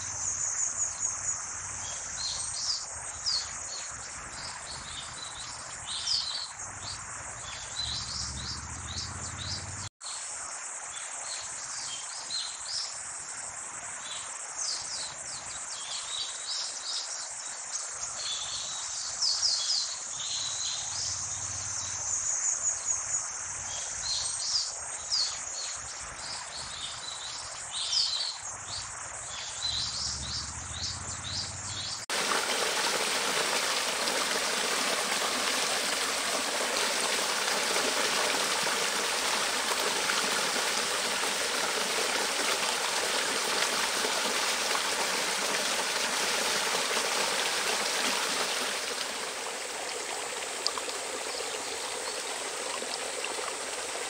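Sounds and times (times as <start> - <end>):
faint insect drone: 0.0 - 54.0
birds chirping: 4.4 - 9.9, 29.3 - 54.0
water splashing over rocks: 32.0 - 54.0.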